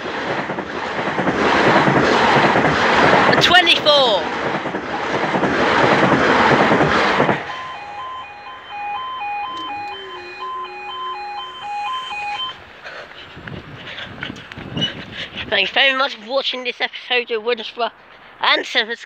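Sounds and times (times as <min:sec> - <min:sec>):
high-speed train rushing past: 0:00.0 - 0:15.7
two-tone level crossing alarm: 0:07.3 - 0:12.6.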